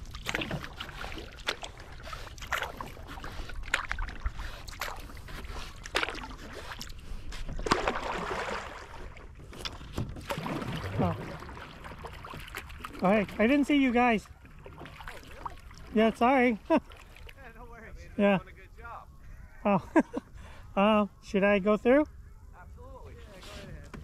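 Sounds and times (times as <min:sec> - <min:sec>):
paddle splashing in water: 0:00.0 - 0:17.5
water washing: 0:07.6 - 0:17.6.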